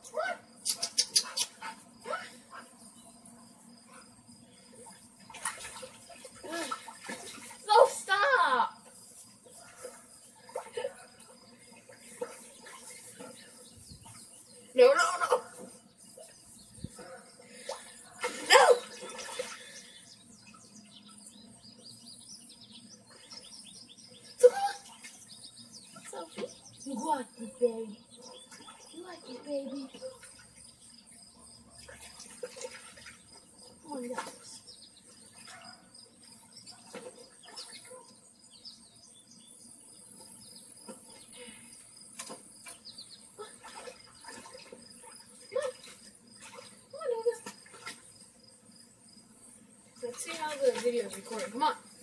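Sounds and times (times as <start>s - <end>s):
small birds chirping: 0.0s - 52.0s
high insect drone: 44.8s - 52.0s.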